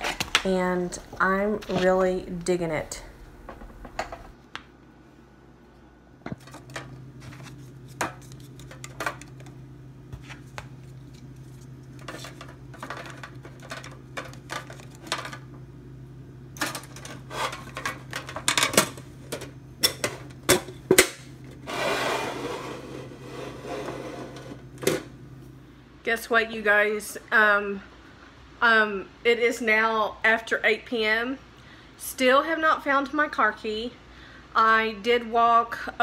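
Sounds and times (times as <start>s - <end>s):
low steady hum: 0.0s - 36.0s
scraping rub: 21.6s - 24.6s.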